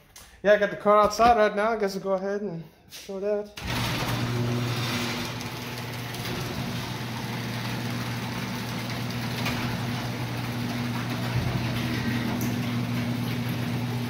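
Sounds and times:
garage door moving: 3.6 - 14.0
garage door opener motor hum: 3.6 - 14.0.

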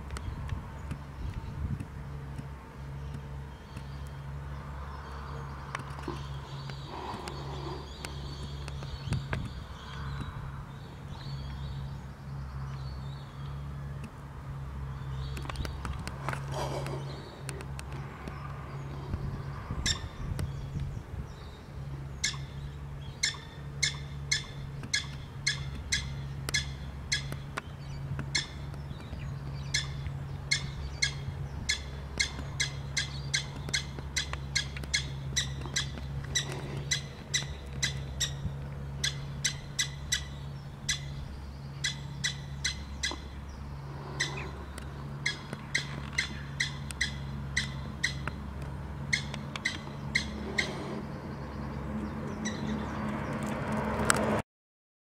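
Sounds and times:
steady low hum: 0.0 - 53.3
prairie dog chirping barks: 22.2 - 22.5, 23.2 - 27.4, 41.8 - 43.3, 45.2 - 48.3, 49.1 - 50.8.

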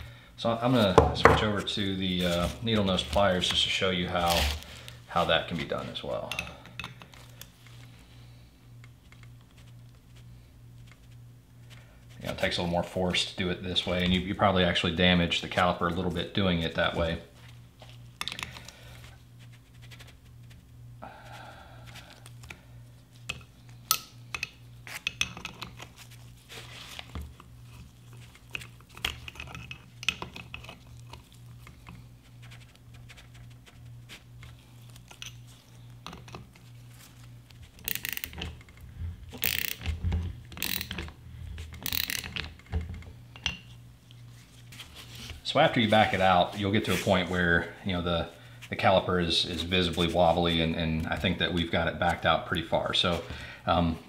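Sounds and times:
pliers clicking on metal: 37.8 - 38.8, 39.4 - 39.9, 40.5 - 41.1, 41.8 - 42.6.

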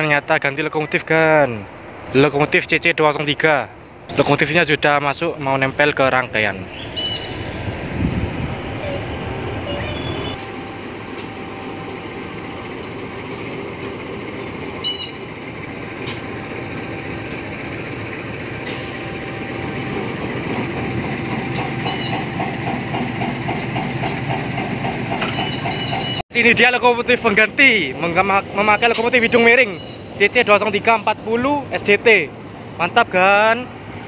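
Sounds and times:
diesel locomotive engine running: 3.6 - 34.0
sharp clicks and knocks: 20.5 - 26.0.

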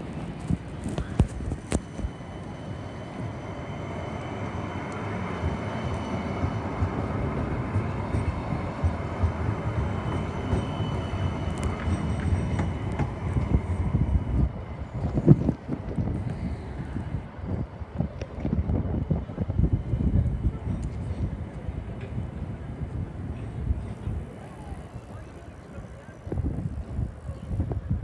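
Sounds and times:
tram wheels rumbling on rail: 0.0 - 28.0.

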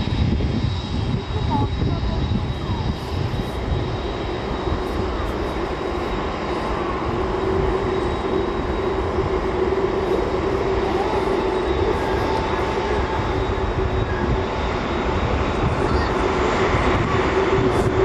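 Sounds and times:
jet engines rumbling and whining: 0.0 - 18.0.

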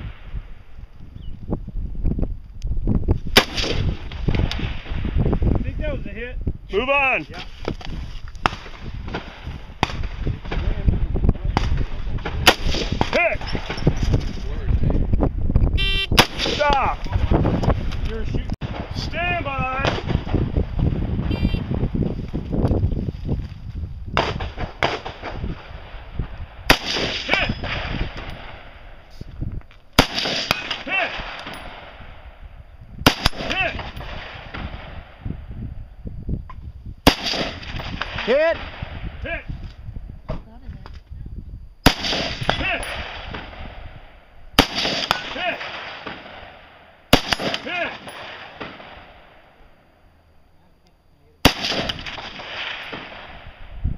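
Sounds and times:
rifle shots: 3.3 - 5.0, 11.5 - 13.8, 15.8 - 16.9, 24.2 - 28.9, 30.0 - 32.2, 33.0 - 35.2, 37.0 - 39.0, 41.8 - 43.9, 44.6 - 49.5, 51.4 - 53.6
person calling out: 21.3 - 21.6.

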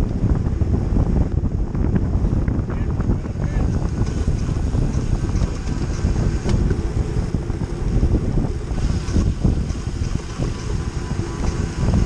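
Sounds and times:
wind buffeting microphone: 0.0 - 12.0
tyres rolling on asphalt: 3.6 - 12.0.

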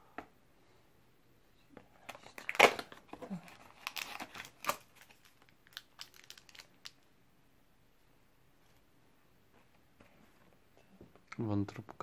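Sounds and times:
foil sachet crinkling: 2.3 - 7.0.

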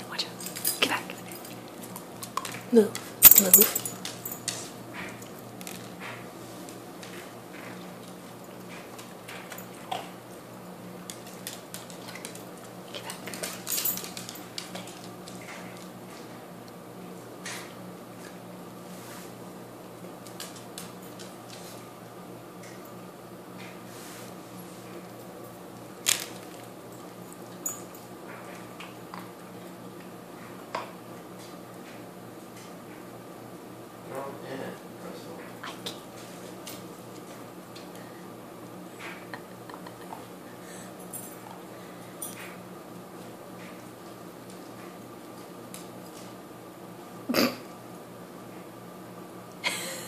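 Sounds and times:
steady low hum: 0.0 - 50.0
dog claws clicking on floor: 0.4 - 10.2, 11.0 - 16.3, 20.2 - 21.9, 25.8 - 29.3.

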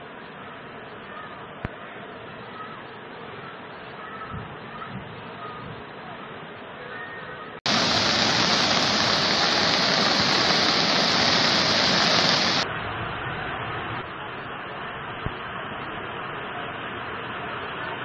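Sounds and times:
floodwater rushing: 7.7 - 12.6.

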